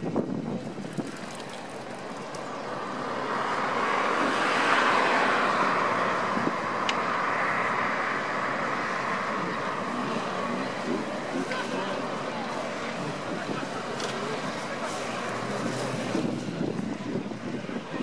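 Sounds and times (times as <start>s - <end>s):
blended traffic engine noise: 0.0s - 18.0s.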